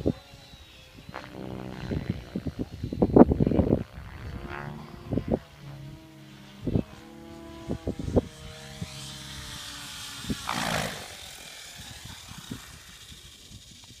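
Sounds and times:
rc helicopter rotor whine: 0.0s - 14.0s
rush of blade noise: 7.6s - 14.0s.

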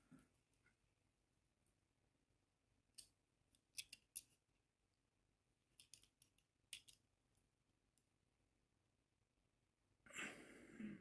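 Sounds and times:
small metal clicks: 2.9s - 4.4s, 5.7s - 7.1s.

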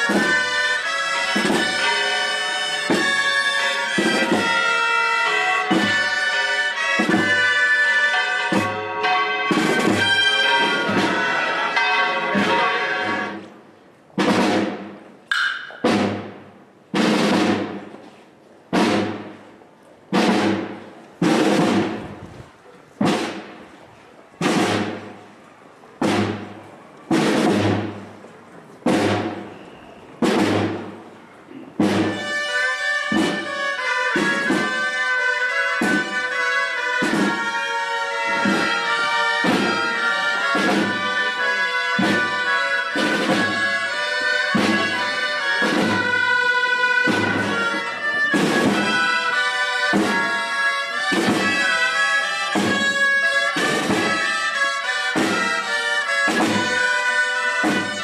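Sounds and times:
ringing percussion strikes: 0.0s - 13.6s, 14.3s - 16.2s, 31.8s - 58.0s
marching band with drums and brass: 0.0s - 58.0s.

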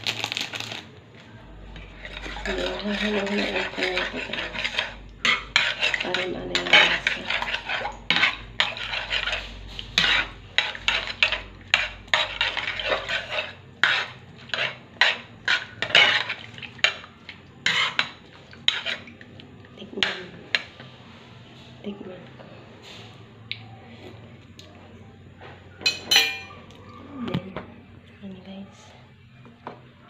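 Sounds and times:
metal spoon scraping frying pan: 1.9s - 17.0s, 17.6s - 19.0s.

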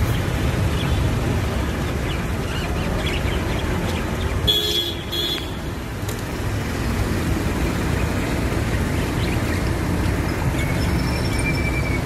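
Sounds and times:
road traffic rumble: 0.0s - 12.0s
vehicle horn blasts: 4.5s - 5.6s.

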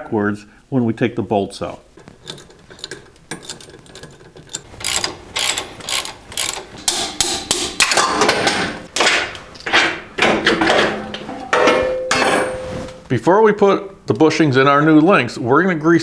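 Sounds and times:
metal-on-metal clanks: 2.0s - 13.0s
socket ratchet clicking: 2.1s - 7.8s.

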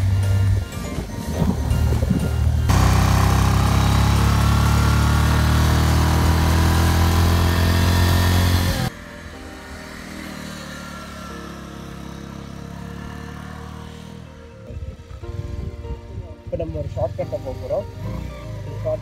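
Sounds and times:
distant motorbike engine: 0.0s - 16.0s, 16.9s - 19.0s
motorbike engine running: 0.0s - 16.0s, 16.8s - 19.0s
wind and road hiss: 14.0s - 17.7s.

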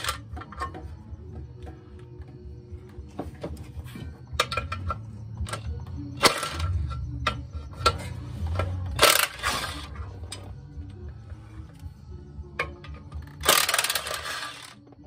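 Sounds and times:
metal scraping rasps: 3.8s - 10.5s, 12.8s - 14.8s.

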